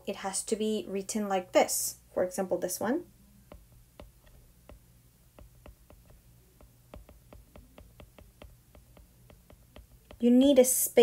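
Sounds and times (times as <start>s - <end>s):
stylus tapping on glass screen: 3.5s - 10.3s.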